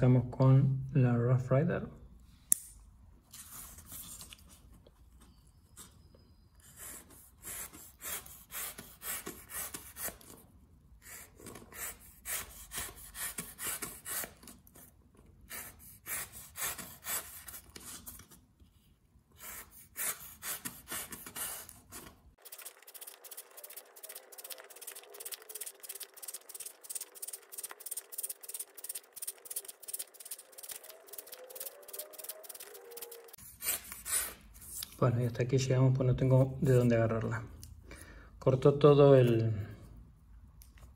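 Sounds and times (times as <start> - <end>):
knife cutting cardboard: 6.7 - 10.4, 11.0 - 18.4, 19.4 - 34.8.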